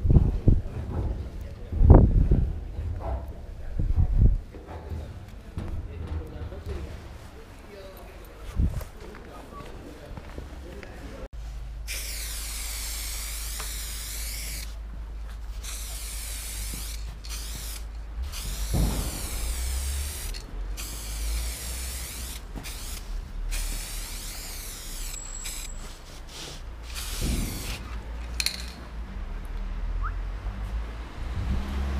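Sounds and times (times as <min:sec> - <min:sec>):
spray paint can hissing: 0:11.9 - 0:14.8, 0:15.6 - 0:28.8
steady low rumble: 0:14.8 - 0:24.2
low thump: 0:18.6 - 0:20.1.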